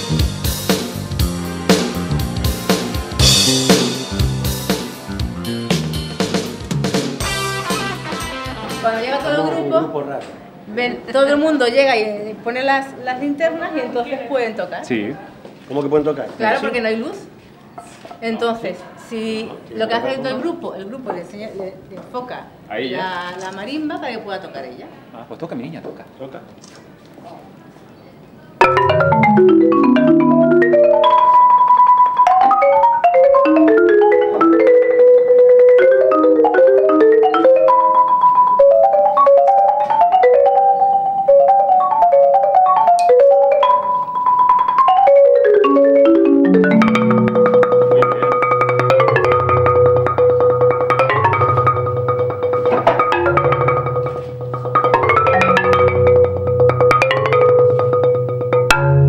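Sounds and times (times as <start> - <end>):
solo marimba: 0.0 - 7.0, 28.6 - 59.0.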